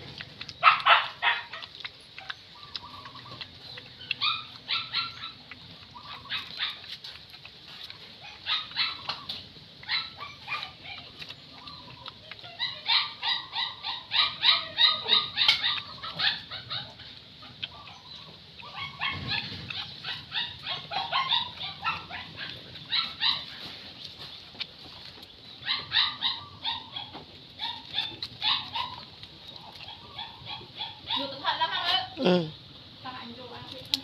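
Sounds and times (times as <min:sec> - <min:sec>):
puppy yipping and whining: 0:00.6 - 0:06.9, 0:08.2 - 0:23.6, 0:25.6 - 0:31.3.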